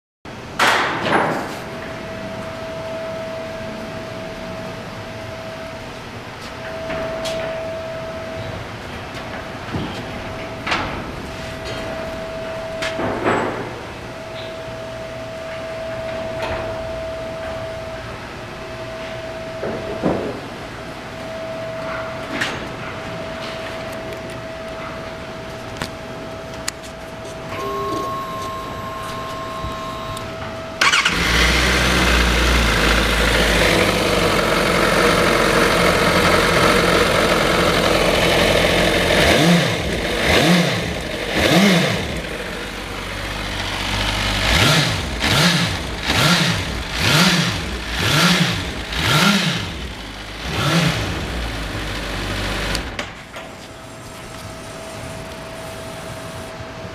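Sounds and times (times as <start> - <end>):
thin high whine: 1.6 - 39.1
steady hum: 1.6 - 56.9.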